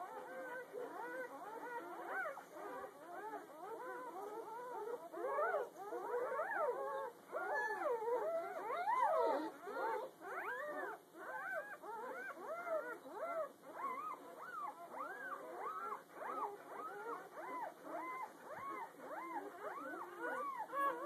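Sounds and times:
puppies squealing and whining: 0:00.0 - 0:21.0.

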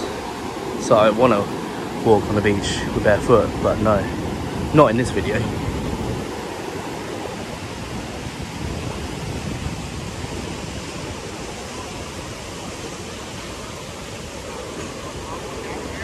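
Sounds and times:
small ocean waves breaking on beach: 0:00.0 - 0:16.0.

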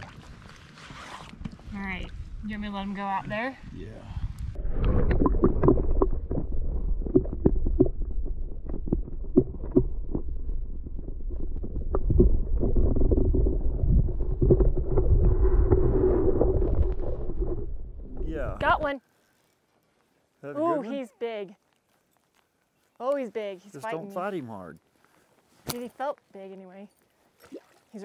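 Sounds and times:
wind noise on microphone: 0:00.0 - 0:18.8.

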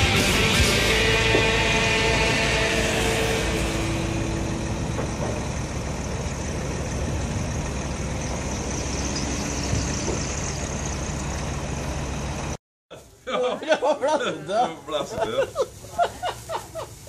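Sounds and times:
diesel engine idling: 0:00.0 - 0:12.6.

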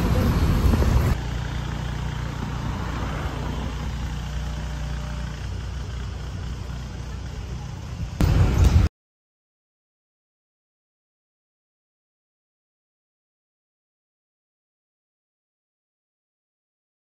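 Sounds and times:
traffic noise: 0:00.0 - 0:08.9
vehicle engine idling: 0:00.0 - 0:08.9.

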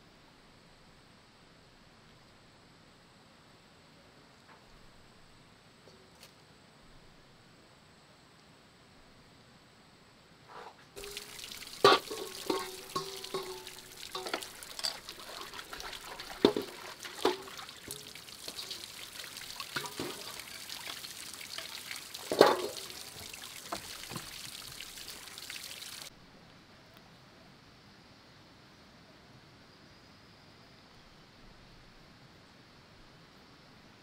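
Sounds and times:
metal bowl ringing: 0:11.0 - 0:15.7
metal bowl clanking against basin: 0:11.0 - 0:21.0, 0:21.6 - 0:23.9
water splashing into stone sink: 0:11.0 - 0:26.1.

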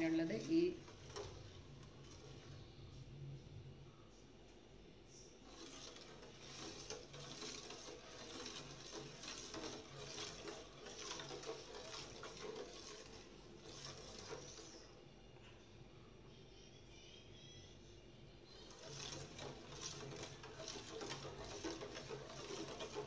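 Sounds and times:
ladle scraping metal pot: 0:00.0 - 0:02.7, 0:05.4 - 0:15.0, 0:18.6 - 0:23.0
liquid sloshing in pot: 0:00.0 - 0:02.9, 0:05.4 - 0:15.0, 0:18.6 - 0:23.0.

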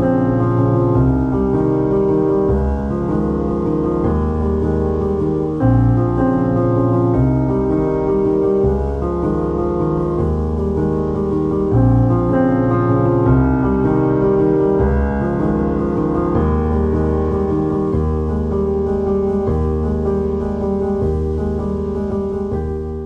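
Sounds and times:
piano background music: 0:00.0 - 0:23.0.

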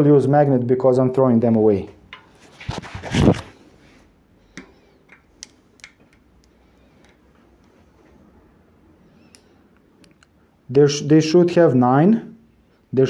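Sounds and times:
handling noise: 0:02.2 - 0:03.6.

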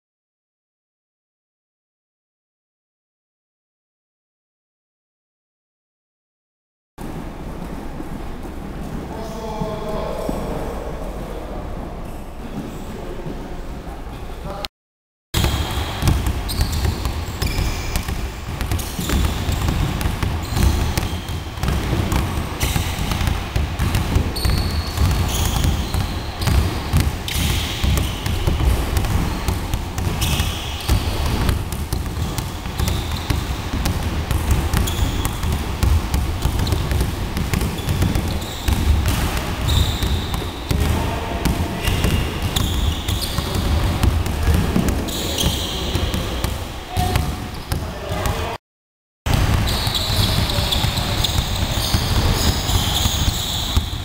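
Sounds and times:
sneaker squeaks: 0:15.4 - 0:33.7, 0:34.3 - 0:48.4, 0:49.5 - 0:54.0
basketballs bouncing on wooden floor: 0:15.4 - 0:48.4, 0:49.3 - 0:54.0.

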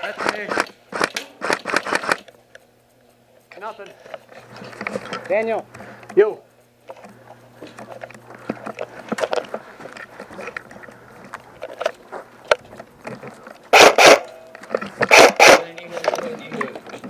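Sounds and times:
airsoft gun fire: 0:00.2 - 0:02.2, 0:13.7 - 0:14.4, 0:15.1 - 0:15.7
footsteps: 0:03.4 - 0:17.0.

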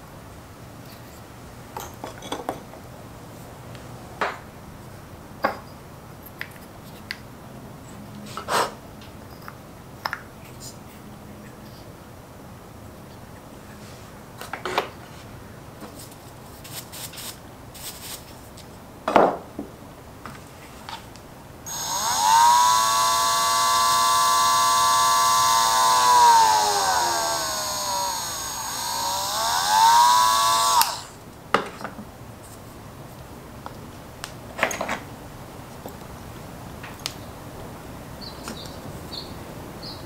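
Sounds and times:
electric rotary tool whining: 0:21.7 - 0:31.2.

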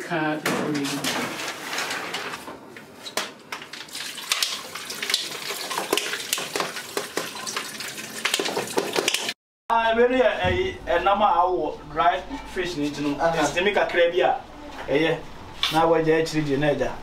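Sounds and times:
liquid sloshing and splashing: 0:03.7 - 0:09.4.

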